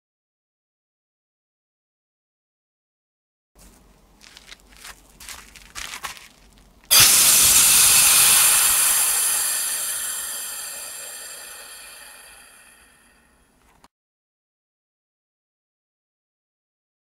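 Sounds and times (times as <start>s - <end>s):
rocket engine rushing hiss: 6.9s - 13.1s
rocket engine sputtering: 6.9s - 13.1s.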